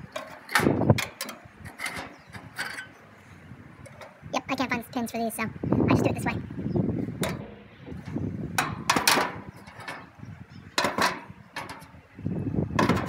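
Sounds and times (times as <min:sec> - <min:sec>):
metal grill parts clanking: 0:00.0 - 0:03.0, 0:03.7 - 0:04.3, 0:07.1 - 0:13.0.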